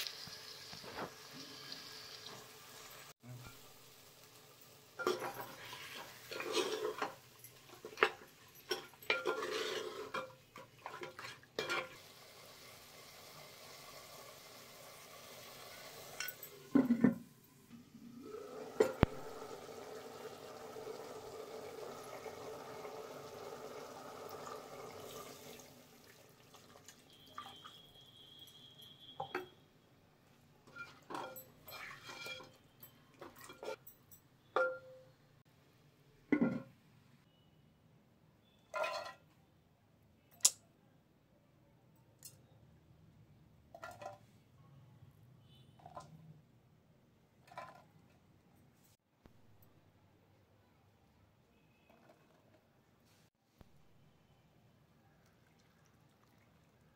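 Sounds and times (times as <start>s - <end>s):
wooden spoon stirring in pot: 5.0s - 12.0s.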